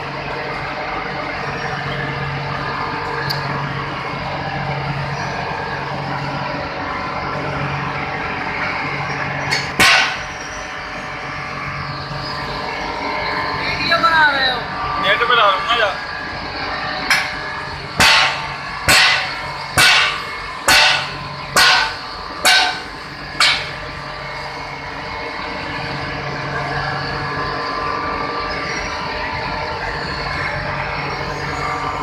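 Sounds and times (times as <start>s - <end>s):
mill machinery humming: 0.0s - 32.0s
sharp metallic bangs: 9.7s - 10.4s, 17.1s - 23.9s.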